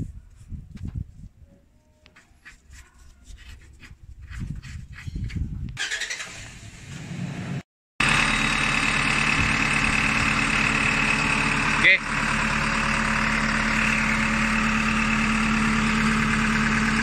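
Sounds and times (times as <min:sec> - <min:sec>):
engine idling: 0:05.8 - 0:17.0.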